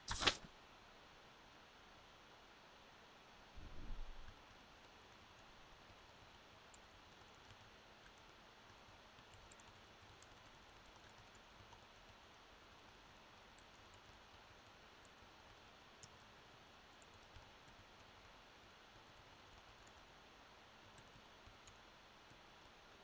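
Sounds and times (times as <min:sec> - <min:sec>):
faint room hiss: 0:00.0 - 0:23.0
soft small clicks: 0:04.2 - 0:16.3, 0:20.8 - 0:22.8.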